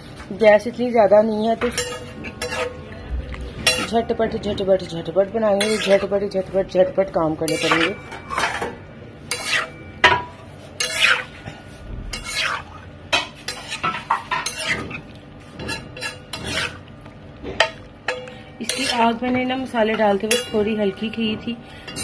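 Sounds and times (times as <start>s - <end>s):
spatula scraping griddle: 1.6s - 2.8s, 5.4s - 6.3s, 7.4s - 16.8s, 17.6s - 21.2s.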